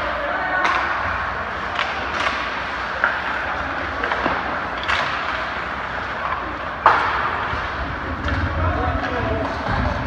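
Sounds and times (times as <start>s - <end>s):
ice rink noise: 0.0s - 10.0s
stick hitting puck: 1.7s - 8.5s.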